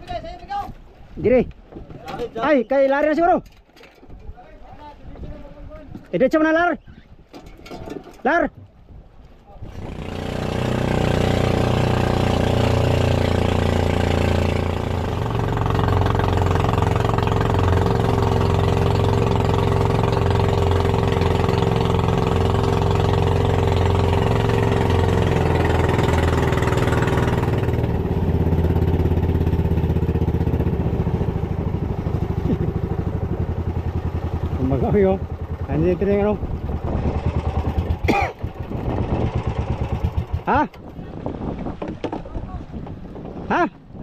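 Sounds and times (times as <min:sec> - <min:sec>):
engine running: 0:09.7 - 0:40.8.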